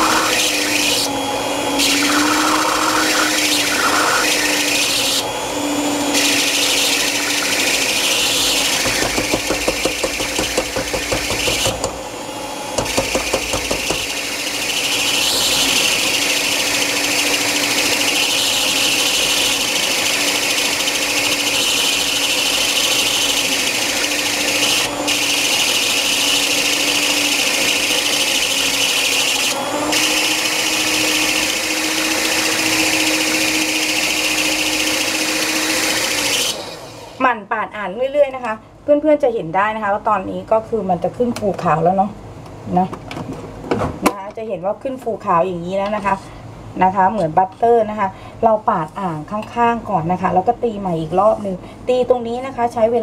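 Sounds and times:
electric hand mixer running: 0:00.0 - 0:37.2.

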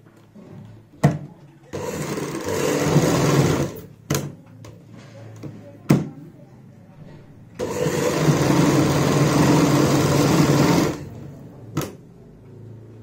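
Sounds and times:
sewing machine stitching: 0:01.7 - 0:03.9, 0:07.6 - 0:11.3.

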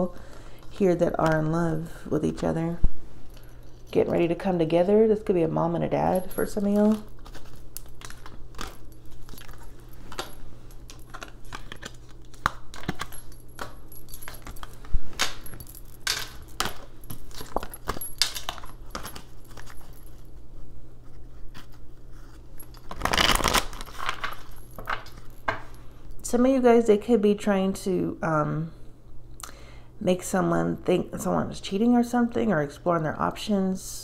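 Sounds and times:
steady low hum: 0:00.0 - 0:34.0
cards being shuffled: 0:06.7 - 0:19.9, 0:21.1 - 0:25.2.

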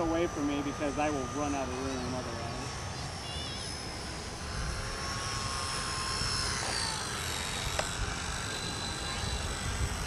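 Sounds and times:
model plane motor whining: 0:00.0 - 0:10.0
wind rumble on microphone: 0:04.4 - 0:10.0.

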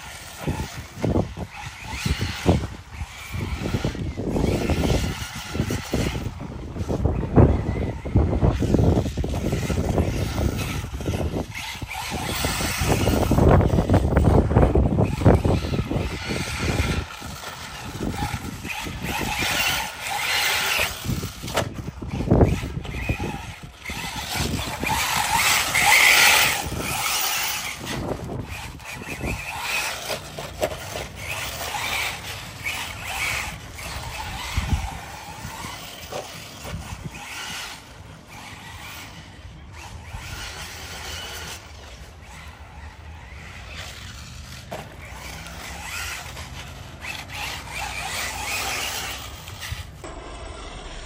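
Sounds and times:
rc car tyres scrabbling on dirt: 0:00.0 - 0:51.0
knocks and scrapes: 0:43.2 - 0:50.1.

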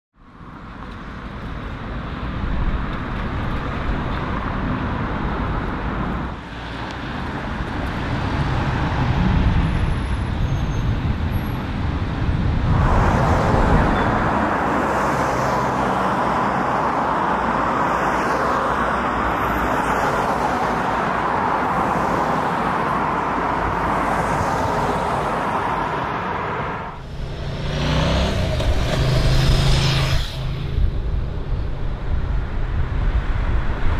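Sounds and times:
cars driving past: 0:02.9 - 0:33.9.

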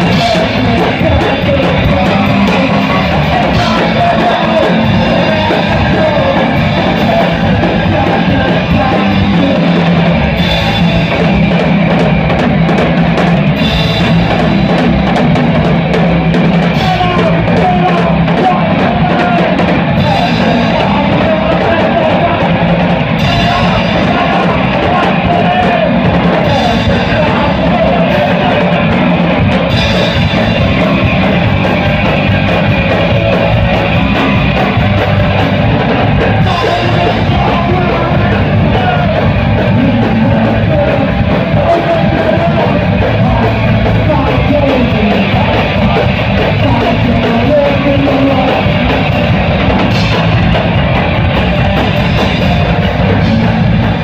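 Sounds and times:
rock band playing loudly: 0:00.0 - 0:54.0.

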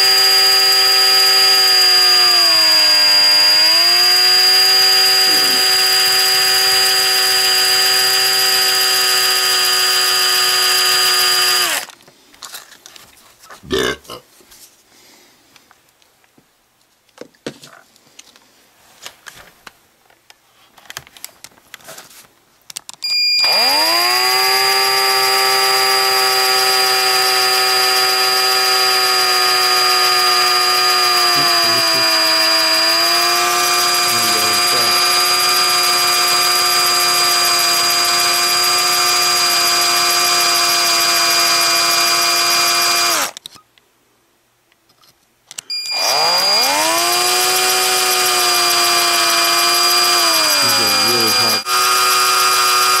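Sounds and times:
cordless drill whining: 0:00.0 - 0:12.0, 0:23.0 - 0:43.4, 0:45.6 - 0:53.0.

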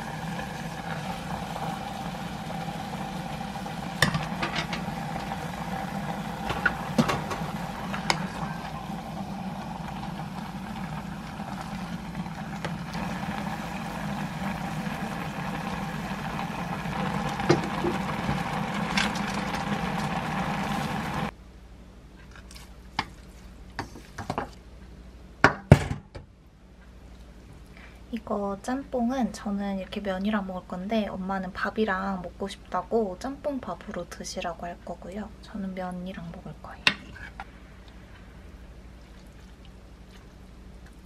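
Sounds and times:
steady stove hum: 0:00.0 - 0:41.0.

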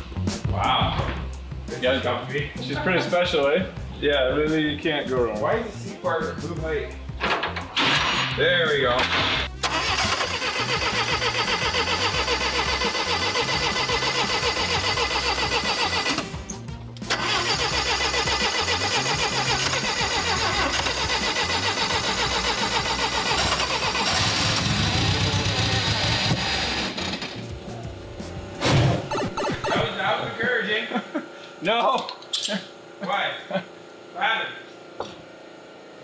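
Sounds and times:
starter cranking engine: 0:09.0 - 0:27.6.

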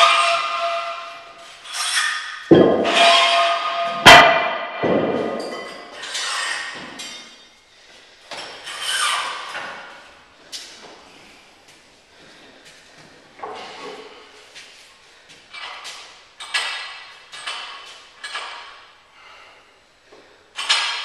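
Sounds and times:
weight plates clanking: 0:00.0 - 0:07.5, 0:15.5 - 0:18.9.

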